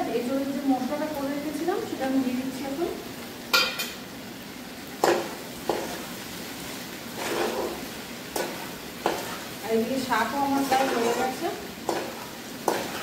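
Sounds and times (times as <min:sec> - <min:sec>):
light frying sizzle: 0:00.0 - 0:13.0
metal spatula scraping metal pan: 0:07.2 - 0:09.5, 0:10.4 - 0:13.0.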